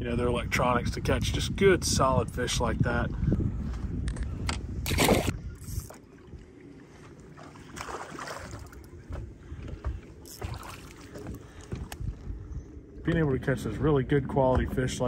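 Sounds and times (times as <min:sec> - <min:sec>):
water sounds: 0:04.8 - 0:15.0.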